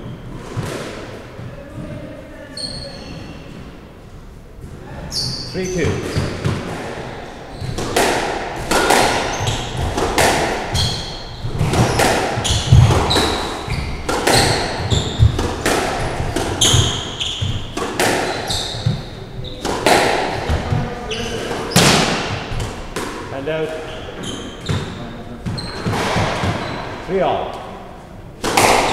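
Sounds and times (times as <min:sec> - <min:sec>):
shoes squeaking on wooden floor: 0:00.0 - 0:03.8, 0:04.4 - 0:27.1
squash ball cracking off rackets: 0:06.0 - 0:23.4, 0:28.4 - 0:28.9.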